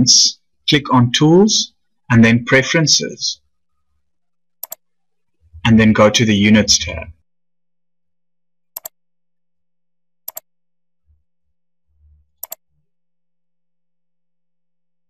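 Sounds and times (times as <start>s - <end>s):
mouse clicks: 4.6s - 4.8s, 8.8s - 9.0s, 10.3s - 10.5s, 12.4s - 12.6s.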